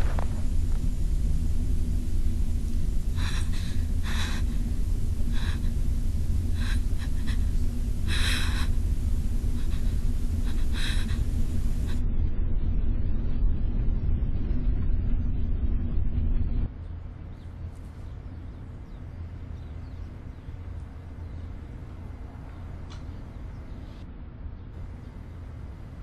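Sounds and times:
low rumble: 0.0 - 26.0
person gasping: 3.2 - 12.0.

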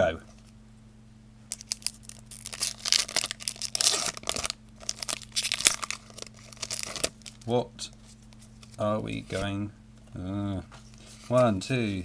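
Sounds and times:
foil wrapper tearing and crinkling: 1.5 - 7.5.

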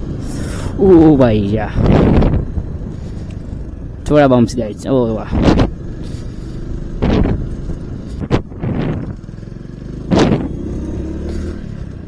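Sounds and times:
motorcycle engine running: 0.0 - 12.0
thumps over road bumps: 5.3 - 6.2, 7.0 - 9.3, 10.0 - 10.7.

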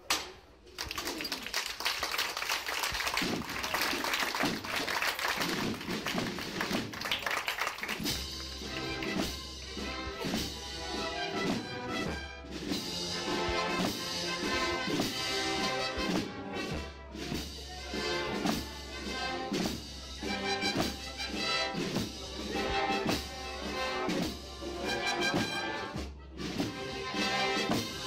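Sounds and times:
brass band music: 3.1 - 28.0
sustained brass chords: 8.0 - 28.0.

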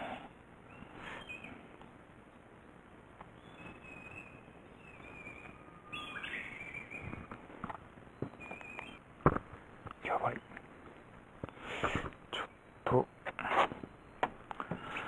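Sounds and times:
songbird whistling: 0.7 - 1.6, 3.4 - 7.4, 8.1 - 9.0.

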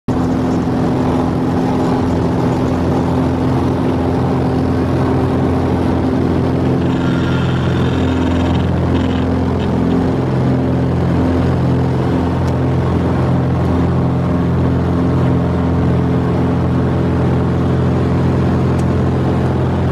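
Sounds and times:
propeller plane engine at full power: 0.1 - 19.9
high buzzing tone: 5.0 - 10.7.

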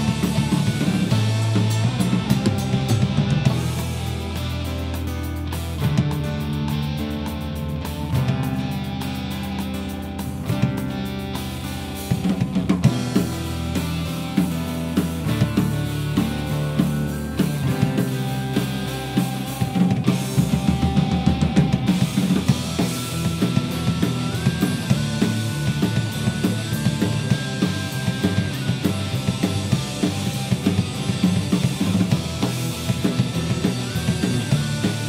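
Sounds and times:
drum kit beat: 0.0 - 35.0
electric guitar and bass: 0.0 - 35.0
high melody of held notes: 11.8 - 35.0.

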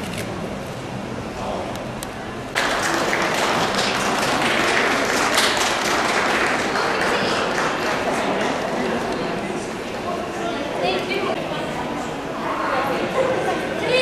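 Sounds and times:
crowd applauding: 2.6 - 9.4.

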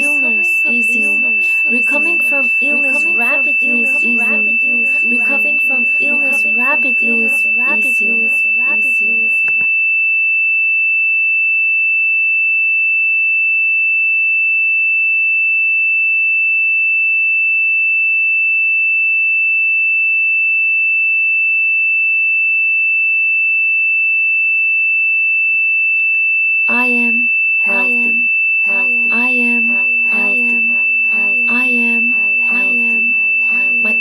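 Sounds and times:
high-pitched electronic tone: 0.0 - 9.6, 26.7 - 34.0
person speaking: 0.0 - 9.6, 26.7 - 34.0.

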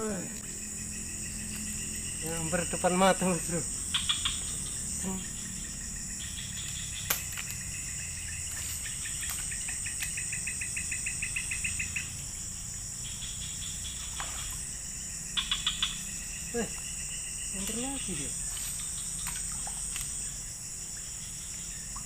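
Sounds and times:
insects buzzing high-pitched: 0.0 - 22.0.

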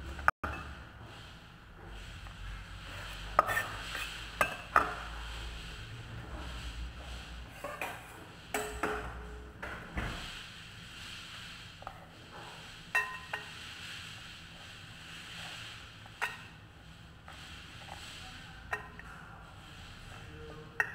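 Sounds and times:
kitchen utensils and dishes clinking: 3.0 - 5.1, 7.5 - 10.3, 11.8 - 13.7.

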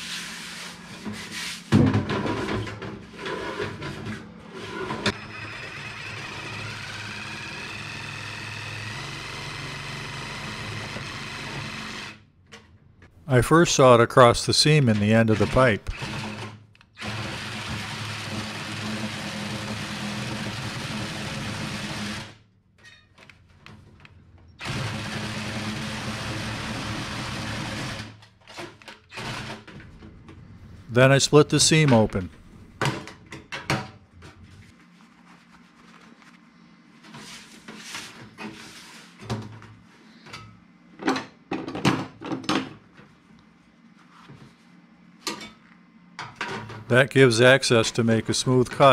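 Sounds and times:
power saw cutting metal: 5.0 - 12.2.

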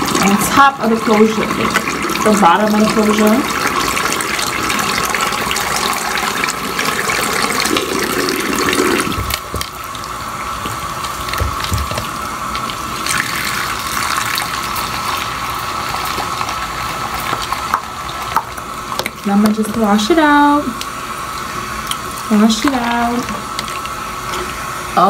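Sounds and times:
tap water running into sink: 0.0 - 25.0
thin steady whine: 18.0 - 25.0.

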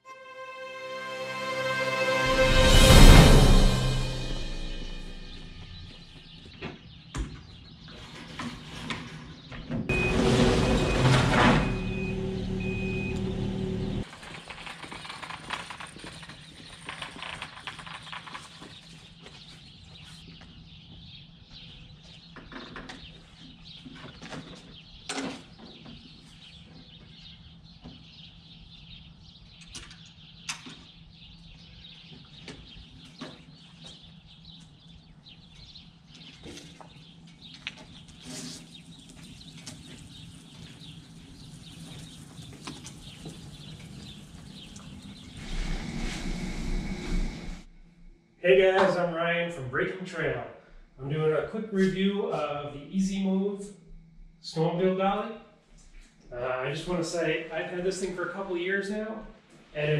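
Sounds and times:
loud steady pitched hum: 44.2 - 51.4.

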